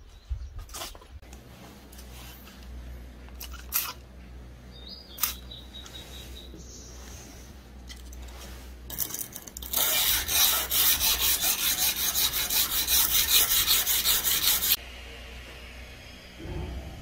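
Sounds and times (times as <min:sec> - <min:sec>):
sandpaper rubbing steel blade: 0:09.0 - 0:14.8.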